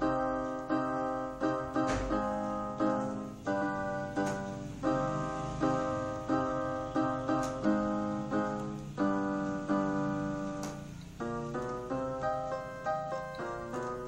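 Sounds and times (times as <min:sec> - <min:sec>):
electronic keyboard piano chords: 0:00.0 - 0:14.0.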